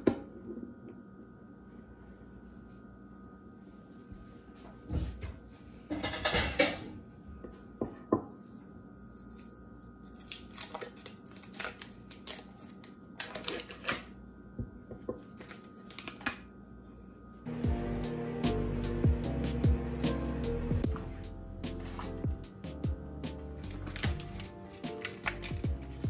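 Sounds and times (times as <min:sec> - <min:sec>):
paper wrapper rustling: 0:09.3 - 0:14.0, 0:15.3 - 0:16.4, 0:23.4 - 0:26.0.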